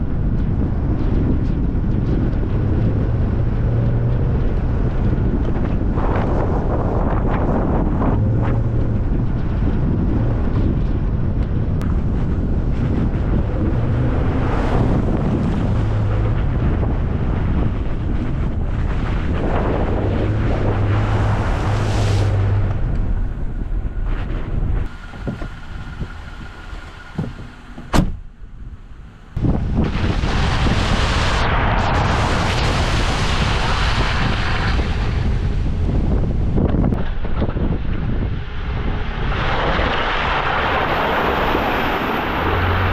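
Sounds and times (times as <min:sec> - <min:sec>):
vehicle engine running: 0:00.0 - 0:30.6
tyre and wind rush: 0:00.0 - 0:42.9
wind buffeting microphone: 0:00.0 - 0:42.9.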